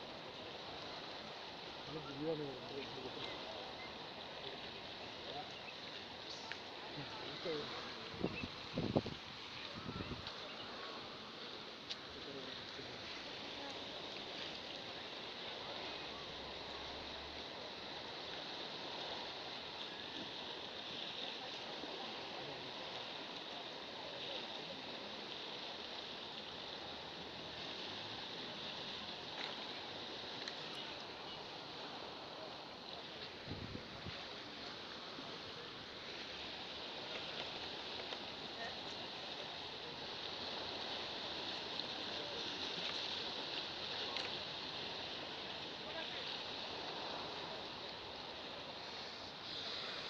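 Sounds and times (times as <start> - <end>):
small waves washing against rocks: 0.0 - 50.0
faint ticks: 30.4 - 31.1.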